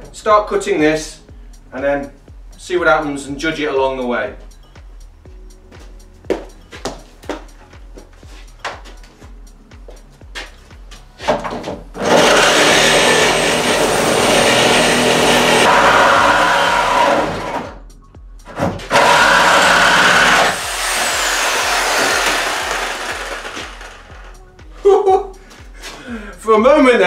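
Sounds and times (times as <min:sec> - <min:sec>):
power saw cutting steel: 0:12.0 - 0:17.7, 0:18.9 - 0:24.3.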